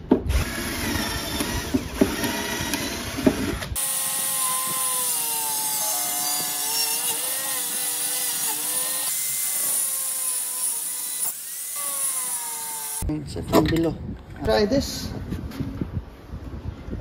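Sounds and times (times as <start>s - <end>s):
angle grinder cutting wood: 0.3s - 13.0s.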